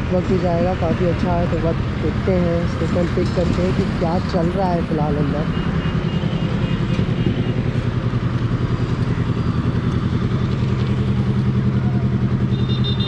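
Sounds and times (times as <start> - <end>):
motorcycle engine idling: 4.7 - 13.0.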